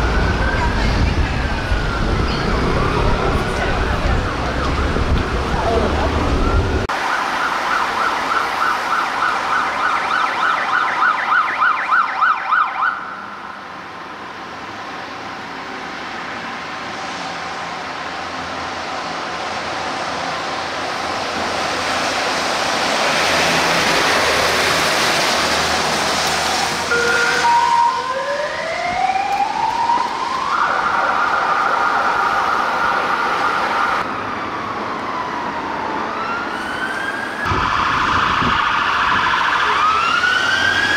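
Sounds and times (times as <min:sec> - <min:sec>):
siren yelping: 0:00.0 - 0:13.4, 0:26.9 - 0:40.9
siren wailing: 0:00.0 - 0:13.6, 0:26.3 - 0:40.9
fire engine passing on wet road: 0:00.0 - 0:40.9.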